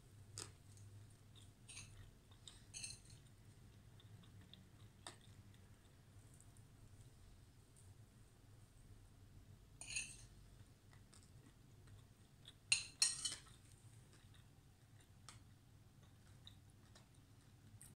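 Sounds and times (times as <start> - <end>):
fork scraping a ceramic plate: 1.7 - 2.1, 2.7 - 3.2, 9.8 - 10.3.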